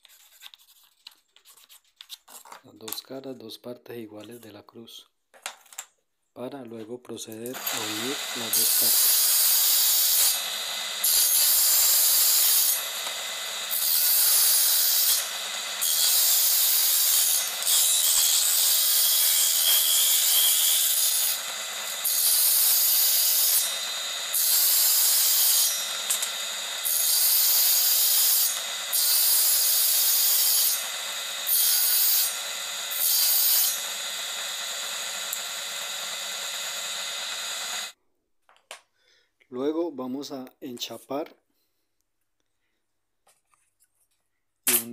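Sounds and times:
tool rasping wood: 0:07.5 - 0:38.0.

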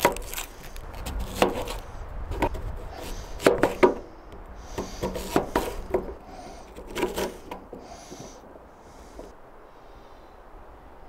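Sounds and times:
knife chopping on plastic board: 0:02.4 - 0:04.0, 0:04.7 - 0:06.2, 0:06.8 - 0:07.7.

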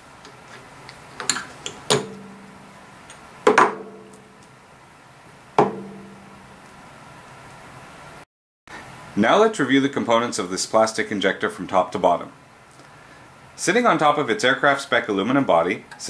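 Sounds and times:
metallic knocks with ring: 0:05.6 - 0:06.2.

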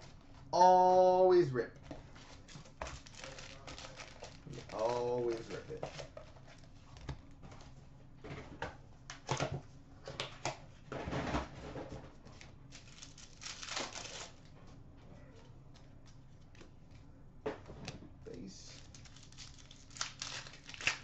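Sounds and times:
card packs tapping and sliding: 0:01.9 - 0:07.1
foil wrapper crinkling: 0:02.0 - 0:06.7, 0:12.7 - 0:14.5, 0:18.6 - 0:21.0.

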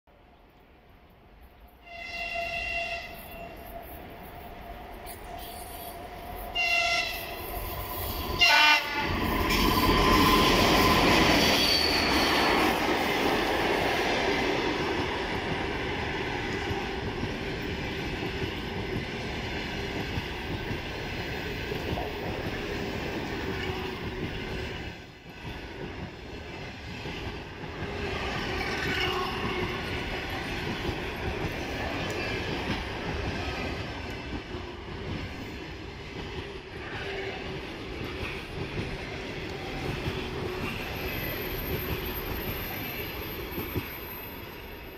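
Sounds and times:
locomotive horn blasts: 0:01.8 - 0:03.5, 0:08.4 - 0:09.1
train wheels rolling on rails: 0:03.0 - 0:44.9.

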